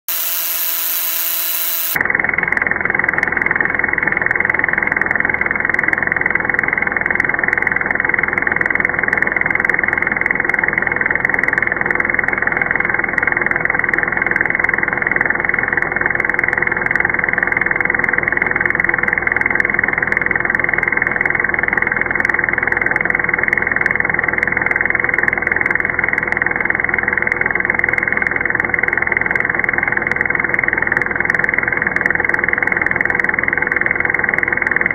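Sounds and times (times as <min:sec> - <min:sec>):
power drill running: 0:00.0 - 0:02.1
deep muffled drone: 0:00.0 - 0:09.3.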